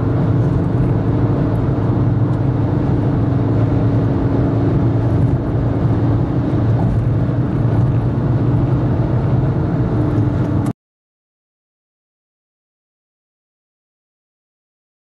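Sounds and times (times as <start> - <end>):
car engine droning: 0.0 - 10.7
wind and road noise: 0.0 - 10.8.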